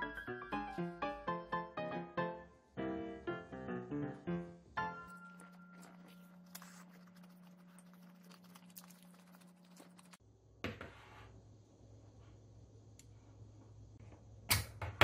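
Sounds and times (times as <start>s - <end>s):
crackles of sandwich being eaten: 5.1s - 10.2s.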